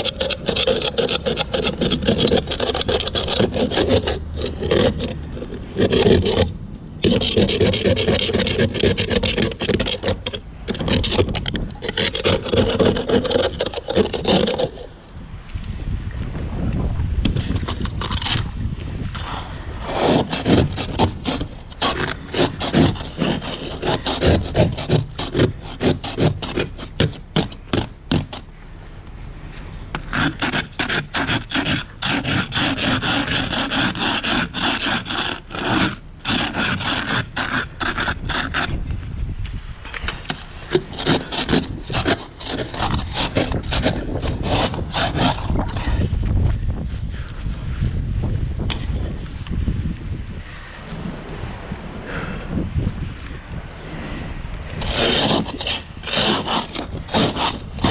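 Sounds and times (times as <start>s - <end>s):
ice scraper scraping windshield: 0.0s - 15.0s, 17.2s - 38.8s, 39.9s - 46.1s, 54.6s - 57.9s.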